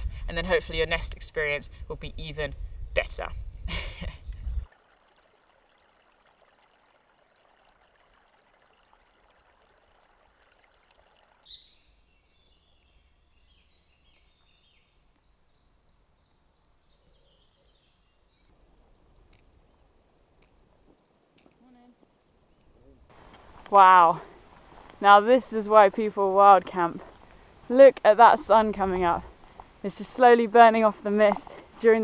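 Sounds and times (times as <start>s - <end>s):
faint birdsong chirps: 1.7s - 4.7s, 9.7s - 23.1s
soft hiss: 17.2s - 25.3s.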